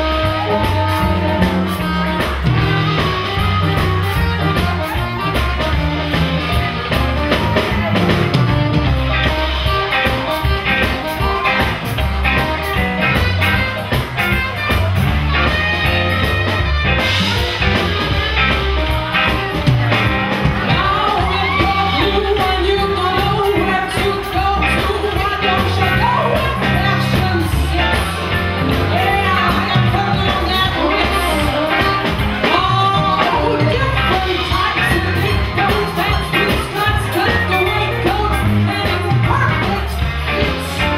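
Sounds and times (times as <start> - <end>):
live band playing: 0.0 - 40.9
woman singing: 20.6 - 40.9.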